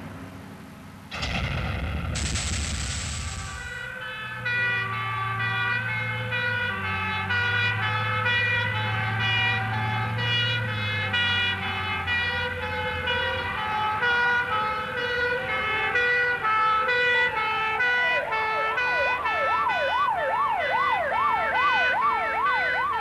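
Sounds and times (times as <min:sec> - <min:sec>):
low engine noise: 0:00.0 - 0:05.7
two-tone siren: 0:03.3 - 0:23.0
yelping siren: 0:03.5 - 0:23.0.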